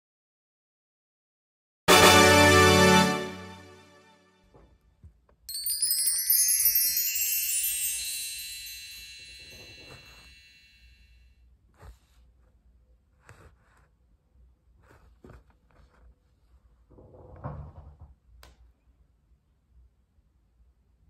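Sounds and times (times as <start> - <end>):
sparkling wind chime tones: 5.5 - 11.0.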